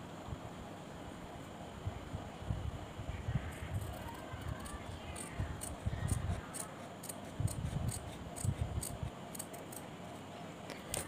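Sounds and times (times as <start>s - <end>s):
scissors snipping through canvas: 4.6s - 9.8s.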